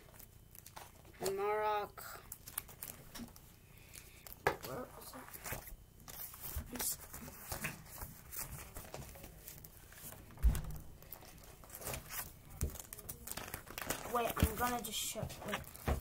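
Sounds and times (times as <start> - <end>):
dull thump: 10.4 - 11.0.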